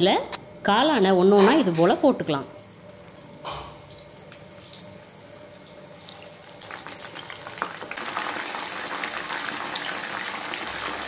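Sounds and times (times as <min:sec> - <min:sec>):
food deep-frying in oil: 0:02.6 - 0:11.0.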